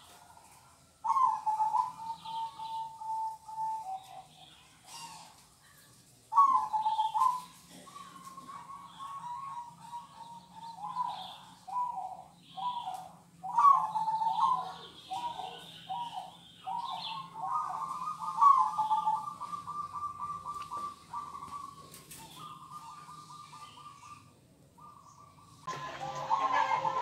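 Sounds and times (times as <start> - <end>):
doves cooing: 0.0 - 5.5, 6.3 - 27.0.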